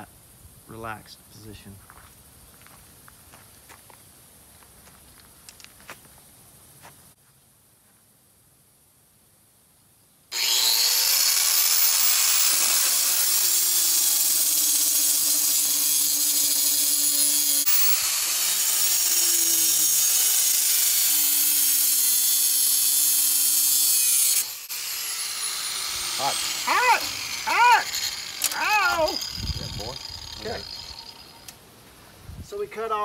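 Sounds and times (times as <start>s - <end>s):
angle grinder cutting steel: 10.3s - 31.6s.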